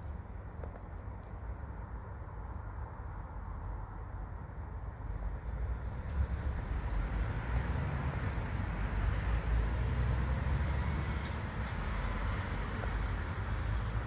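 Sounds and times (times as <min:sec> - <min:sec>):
low rumble of traffic: 0:00.0 - 0:14.0.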